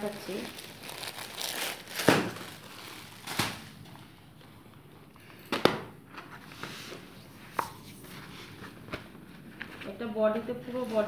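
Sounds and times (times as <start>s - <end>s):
plastic packaging rustling: 0.0s - 4.5s.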